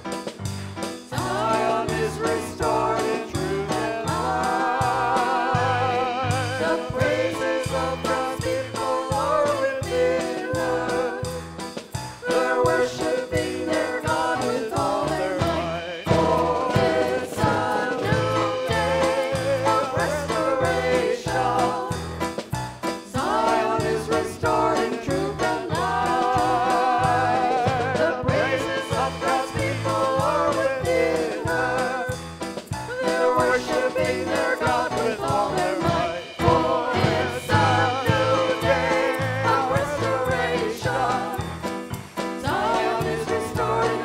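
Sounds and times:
bass notes: 0.0 - 44.0
steady drum beat: 0.0 - 44.0
person singing with vibrato: 1.1 - 11.4, 23.2 - 32.2
worship song with singing: 1.1 - 22.1, 23.0 - 44.0
bass line: 23.2 - 33.6, 34.2 - 44.0.

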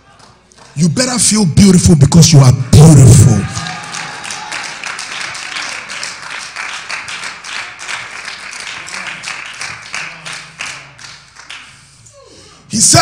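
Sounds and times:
crowd applauding: 0.0 - 12.0.

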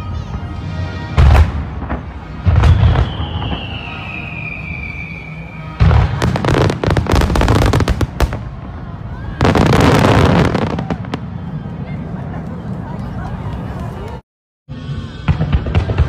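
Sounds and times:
fireworks booming and crackling: 1.1 - 12.8, 15.3 - 16.0.

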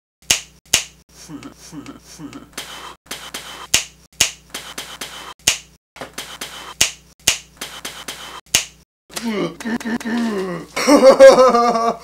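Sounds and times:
rhythmic snapping clicks: 0.2 - 1.0, 1.8 - 8.8.

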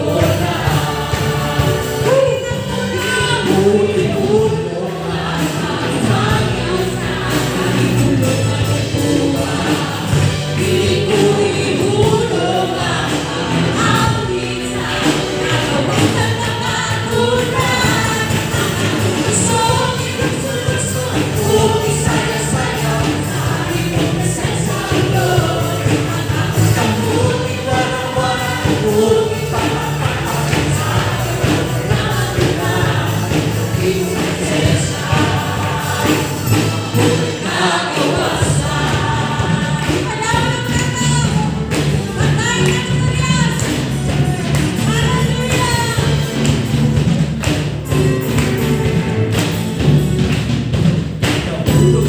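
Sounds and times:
band music: 0.0 - 52.0
group singing worship song: 0.0 - 52.0
instrumental accompaniment: 0.0 - 52.0
hand clapping: 47.4 - 50.6.

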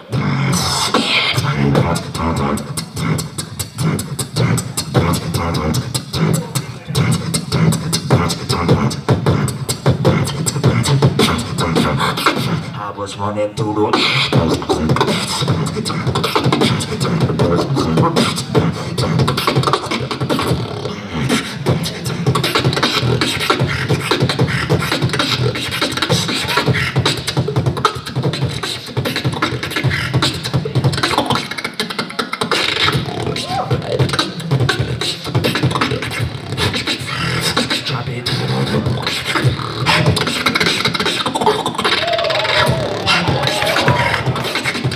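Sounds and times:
beatboxing into microphone: 0.0 - 44.9
wavering vocal tone: 0.0 - 44.9
bass line: 0.1 - 12.8, 42.0 - 44.9.

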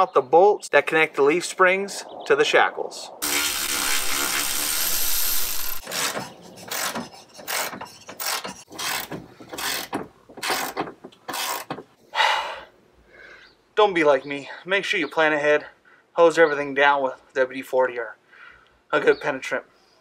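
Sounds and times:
steady rasping noise: 3.2 - 11.8.

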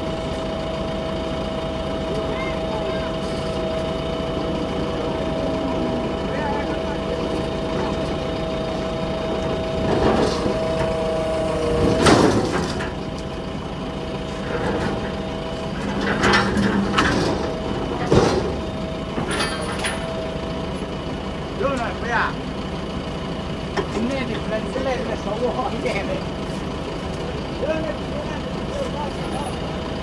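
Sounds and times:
diesel engine running: 0.0 - 30.0
heavy metallic clanks: 15.8 - 20.3.

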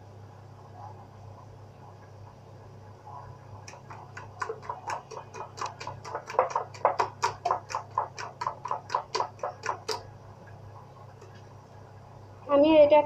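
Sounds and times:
hand slapping batter in bowl: 3.6 - 10.2.

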